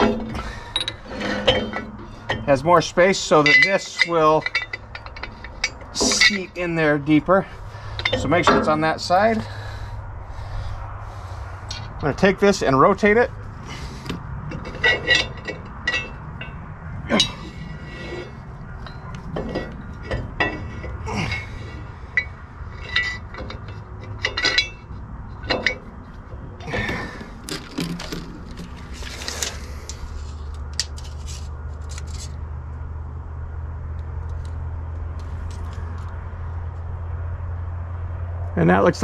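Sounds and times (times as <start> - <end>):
steel clinks and knocks: 0.0 - 6.8, 7.9 - 8.8, 14.1 - 25.9
bolts and washers rattling: 0.0 - 9.5, 11.7 - 32.3
steady low hum: 0.0 - 39.0.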